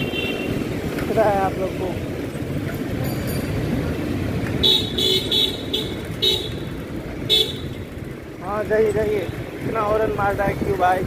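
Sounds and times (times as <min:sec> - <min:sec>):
street traffic noise: 0:00.0 - 0:11.0
vehicle horn tooting: 0:04.6 - 0:06.6, 0:07.3 - 0:07.7.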